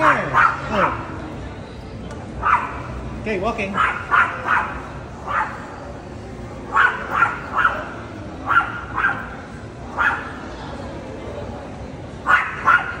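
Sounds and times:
dog barking: 0.0s - 1.1s, 2.4s - 3.0s, 3.8s - 5.8s, 6.7s - 10.4s, 12.2s - 13.0s.

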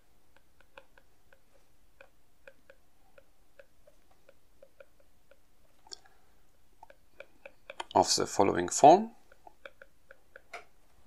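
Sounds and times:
stylus tapping on tablet screen: 0.0s - 10.8s.

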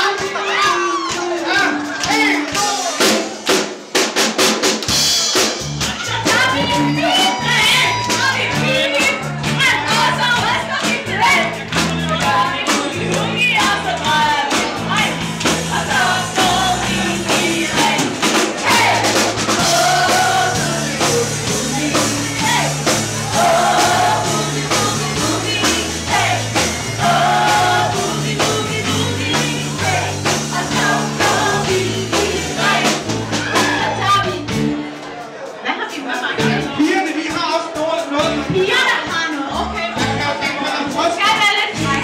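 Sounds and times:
drums: 0.0s - 42.0s
bass line: 5.3s - 34.9s, 39.6s - 40.4s, 41.8s - 42.0s
person singing: 15.7s - 34.6s.

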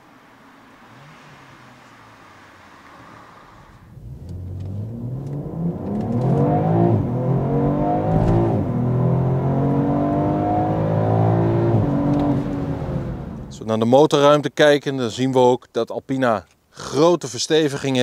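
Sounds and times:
car engine accelerating hard: 0.0s - 13.6s.

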